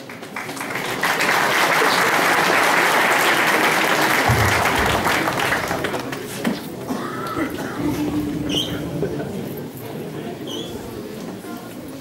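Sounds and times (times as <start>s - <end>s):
audience applauding: 0.0s - 6.9s
low thud: 4.2s - 6.1s.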